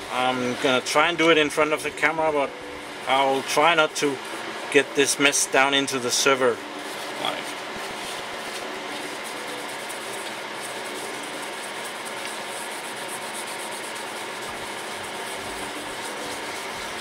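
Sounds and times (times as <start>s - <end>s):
server cooling fans whirring: 0.0s - 17.0s
tissue rubbing on metal: 6.1s - 17.0s.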